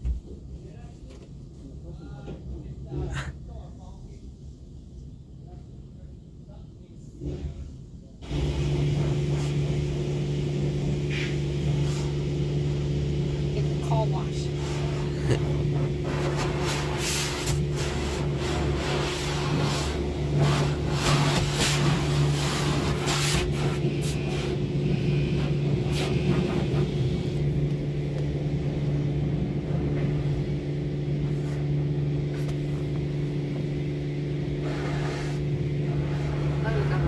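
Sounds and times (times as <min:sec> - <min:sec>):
low mechanical hum: 0:00.0 - 0:37.0
water spraying against car: 0:08.3 - 0:33.8, 0:34.5 - 0:37.0.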